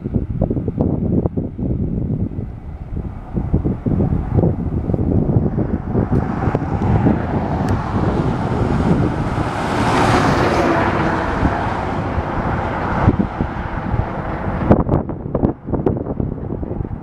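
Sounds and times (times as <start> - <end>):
jet engines rushing: 0.0 - 17.0
wind rumbling on microphone: 0.0 - 17.0.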